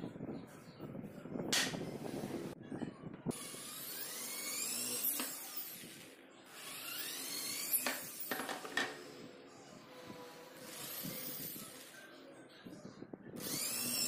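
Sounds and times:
electric drill boring into wood: 3.3s - 9.1s, 10.1s - 12.0s, 13.4s - 14.0s.

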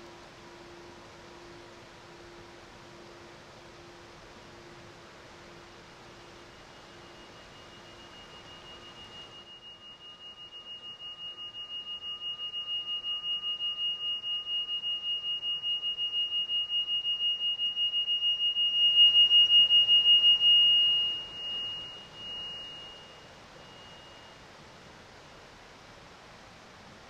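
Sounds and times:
singing bowl ringing: 5.4s - 24.4s.

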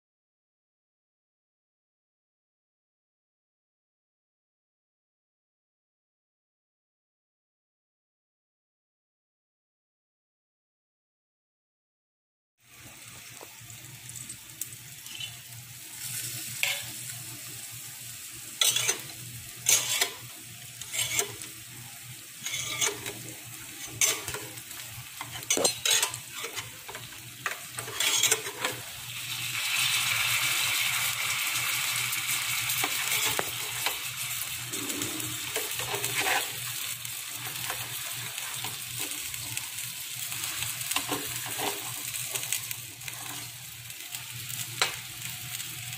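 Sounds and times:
fish sizzling in oil: 12.6s - 45.9s.

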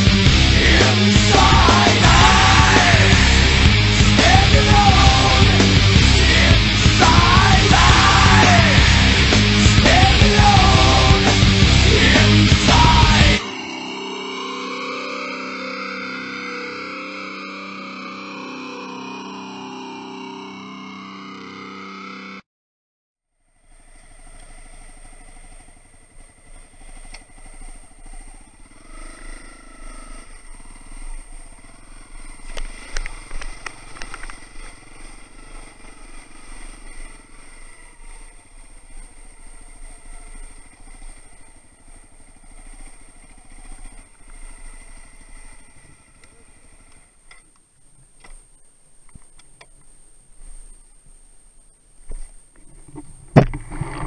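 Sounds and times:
dirt bike engine running: 0.0s - 13.5s, 23.7s - 47.3s.

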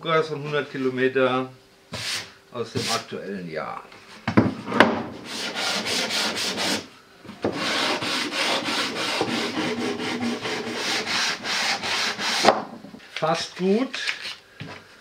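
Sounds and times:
sandpaper rubbing on wood: 5.2s - 6.9s, 7.5s - 12.5s.

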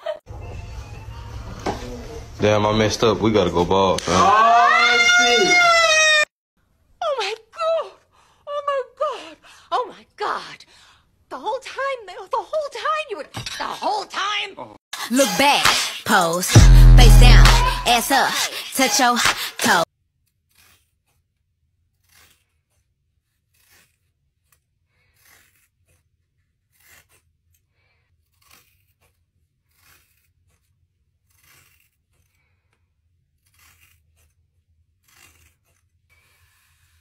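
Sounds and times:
hair shears cutting: 15.0s - 19.8s.

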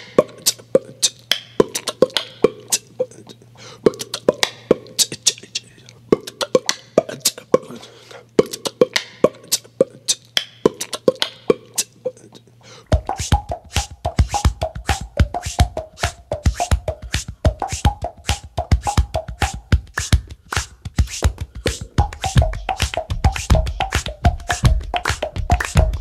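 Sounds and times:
low steady hum: 0.0s - 26.0s
percussive clicks and hits: 13.0s - 26.0s.

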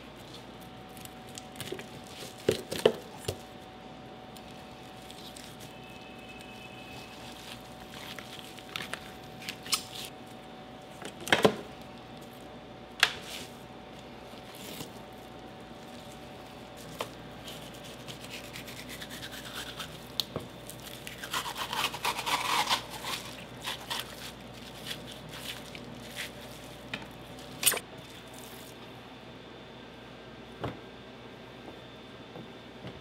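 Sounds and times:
steady hum: 0.0s - 33.0s
knife cutting fish: 21.0s - 26.3s.

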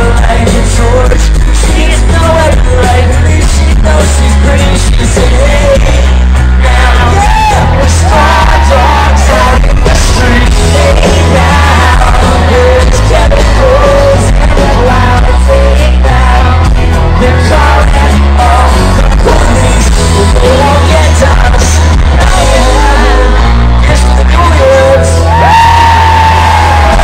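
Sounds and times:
live rock band playing: 0.0s - 27.0s
person singing: 0.0s - 27.0s
crowd yelling: 6.6s - 15.2s, 19.4s - 27.0s.

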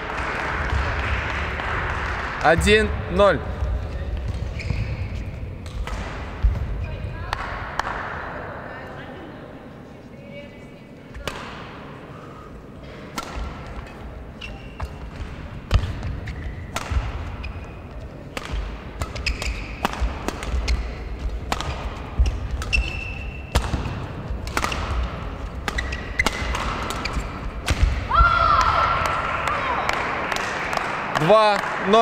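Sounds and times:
shoes squeaking on court floor: 3.6s - 5.8s, 13.7s - 23.7s, 24.3s - 27.6s
racket hitting shuttlecock: 4.2s - 8.2s, 11.2s - 11.8s, 13.0s - 31.7s.

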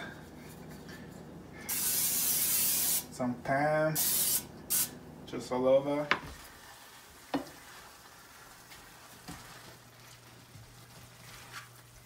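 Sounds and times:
steady low hum: 0.0s - 6.2s
meat frying in a skillet: 6.3s - 12.0s.

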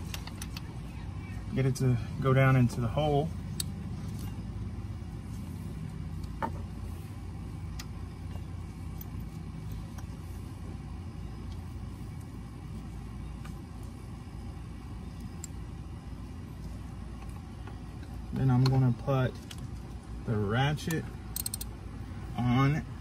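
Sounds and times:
metal socket clicks: 21.3s - 21.7s.

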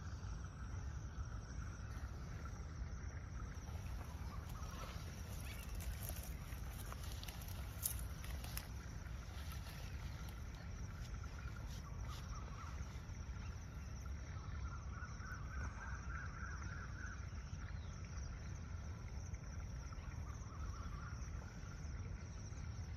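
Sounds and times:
steady low rumble: 0.0s - 15.2s.

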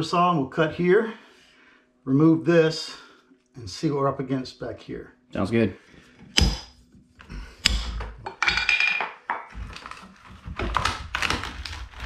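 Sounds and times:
hammer striking steel pry bar: 6.3s - 6.8s, 7.6s - 8.7s.

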